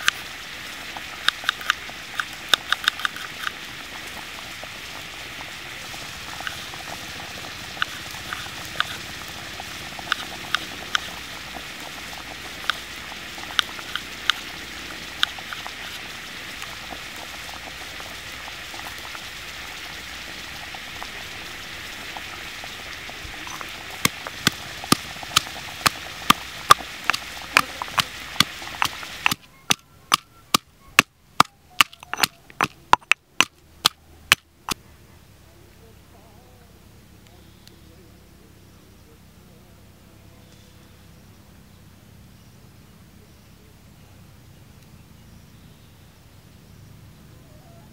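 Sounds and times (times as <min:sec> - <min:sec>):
steady hiss: 0:00.0 - 0:47.9
pestle pounding in stone mortar: 0:24.0 - 0:34.4.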